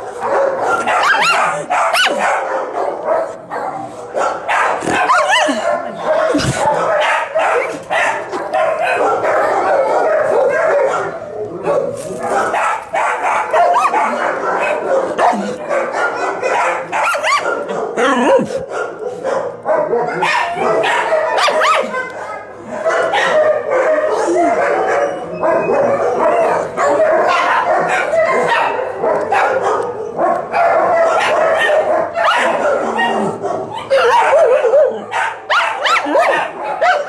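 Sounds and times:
dogs barking and yipping: 0.0 - 37.0.

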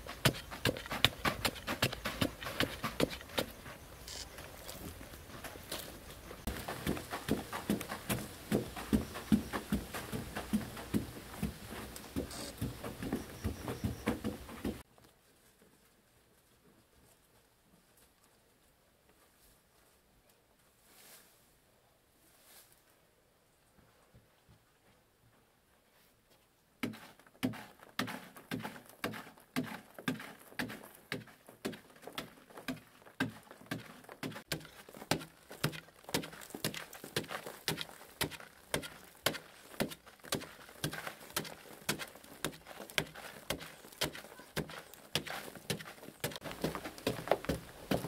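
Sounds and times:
tool striking earth wall: 0.0 - 14.9, 26.8 - 48.0.

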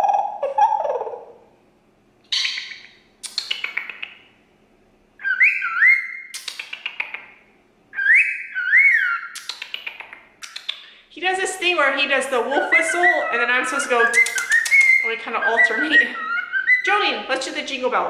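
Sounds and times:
cockatiel whistling: 2.3 - 4.1, 5.2 - 7.1, 7.9 - 9.8, 12.6 - 17.1
cockatiel chirping: 2.3 - 4.2, 5.2 - 7.2, 8.0 - 10.9, 12.6 - 17.0.

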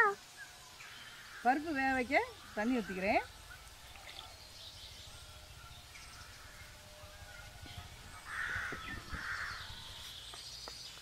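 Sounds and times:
crow cawing: 8.2 - 9.9.

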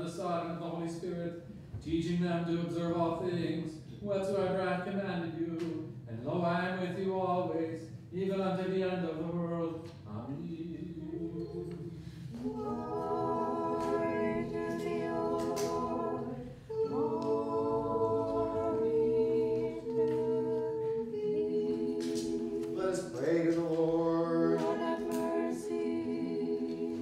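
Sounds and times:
group singing a hymn in harmony: 10.2 - 27.0.

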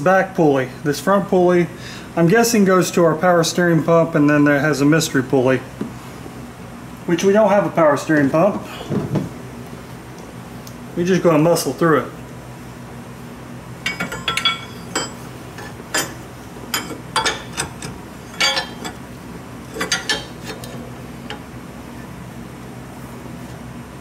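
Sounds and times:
wrench clinking on metal: 13.8 - 19.0, 19.8 - 21.4.

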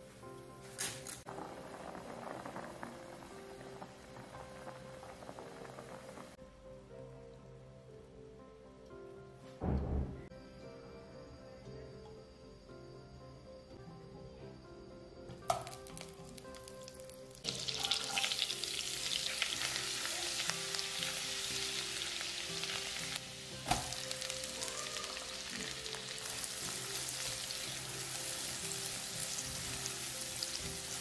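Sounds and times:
garlic sizzling in a pan: 0.8 - 6.4, 15.5 - 31.0
sharp knock: 9.6 - 10.3.

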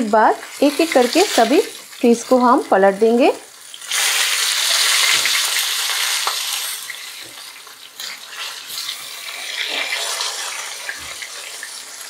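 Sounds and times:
fish sizzling in hot oil: 0.0 - 12.0
spatula turning fish in pan: 3.6 - 12.0.

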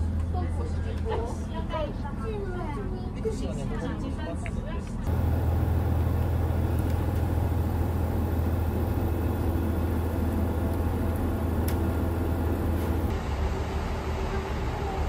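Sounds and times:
diesel railcar engine drone: 5.1 - 15.0.

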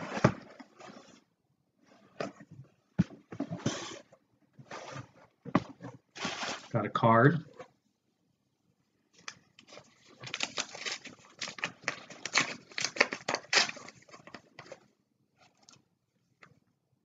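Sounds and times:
paper crinkling and rustling: 9.2 - 15.8.

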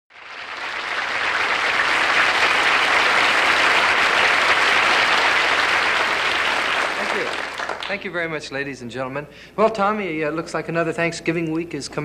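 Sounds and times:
studio audience applauding: 0.1 - 8.3.

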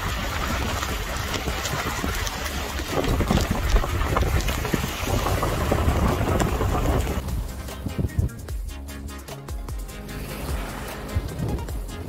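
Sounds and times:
wind and rain hiss: 0.0 - 8.6
wind buffeting microphone: 0.0 - 8.6, 11.1 - 12.0.

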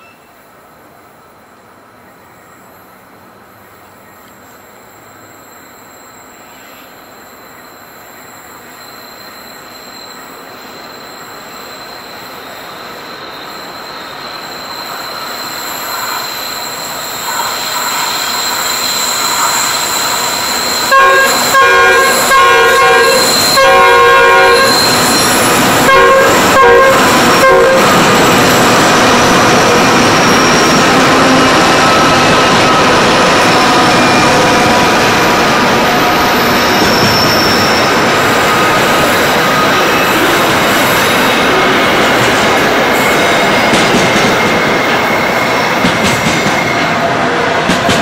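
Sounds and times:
diesel locomotives hauling freight train: 0.0 - 48.0
steel wheels squealing: 4.9 - 48.0
train horn short blasts: 20.8 - 28.0.

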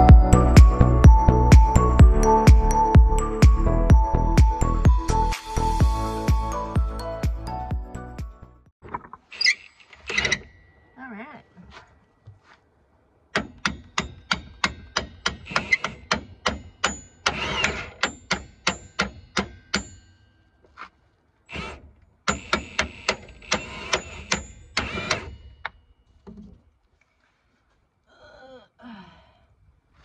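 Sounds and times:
hammer striking steel bolt: 13.3 - 20.0, 22.3 - 25.8.

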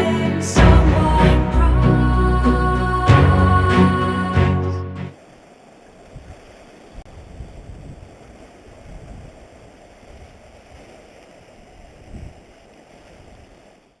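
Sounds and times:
sea washing against rocks: 5.1 - 14.0
wind buffeting microphone: 6.0 - 10.9, 11.5 - 13.7.

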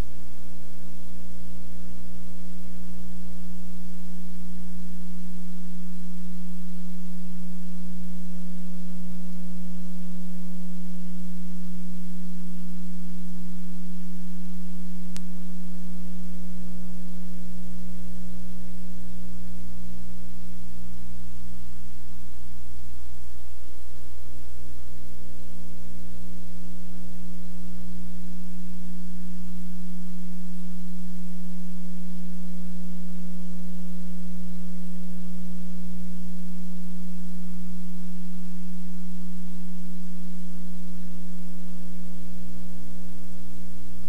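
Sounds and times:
electrical mains hum: 0.0 - 44.0
faint click: 15.1 - 15.4.

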